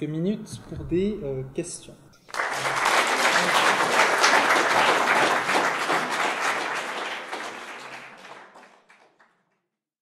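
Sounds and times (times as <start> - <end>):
audience applauding: 2.3 - 9.5.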